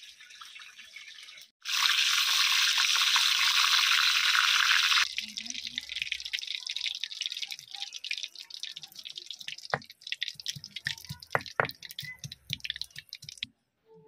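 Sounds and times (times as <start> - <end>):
stone muller knocking on stone slab: 11.2 - 11.8.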